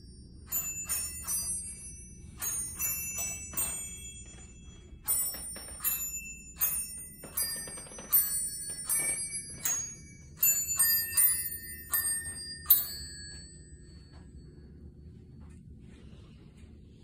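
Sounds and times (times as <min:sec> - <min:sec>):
glockenspiel chimes playing tune: 0:00.0 - 0:14.6.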